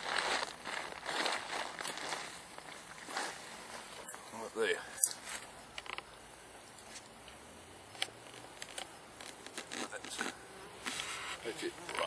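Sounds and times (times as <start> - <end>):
bees buzzing: 7.6 - 12.0
short clicks and rustles: 7.9 - 12.0.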